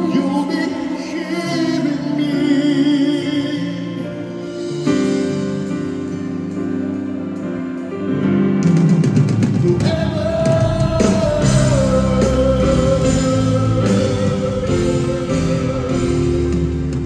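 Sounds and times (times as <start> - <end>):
drums: 0.0 - 17.0
live ballad with band: 0.0 - 17.0
man singing long note: 9.7 - 17.0.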